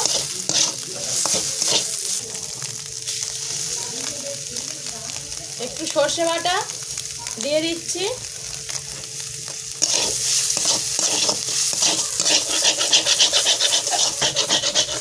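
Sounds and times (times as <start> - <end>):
metal spatula scraping a pan: 0.0 - 1.9, 9.8 - 15.0.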